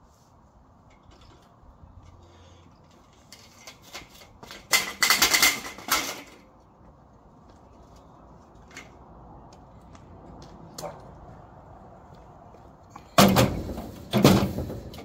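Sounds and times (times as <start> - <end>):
scrap metal clattering: 0.9 - 6.5, 13.2 - 15.0.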